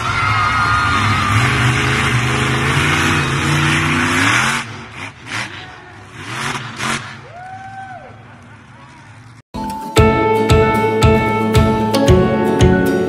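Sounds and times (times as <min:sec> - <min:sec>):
car engine revving: 0:00.0 - 0:07.3.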